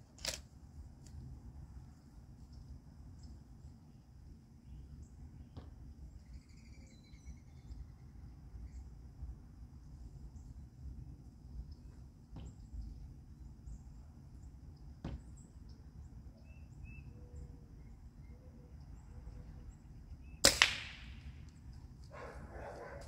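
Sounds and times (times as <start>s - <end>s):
small clicks: 0.0s - 1.2s
pellet gun cracks: 0.1s - 0.5s, 20.4s - 21.3s.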